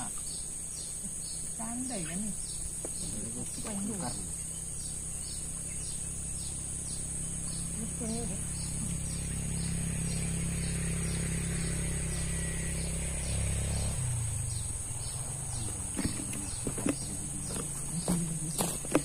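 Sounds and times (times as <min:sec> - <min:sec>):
high-pitched insect drone: 0:00.0 - 0:19.0
short insect chirps: 0:00.0 - 0:19.0
steady low rumble: 0:02.3 - 0:18.6.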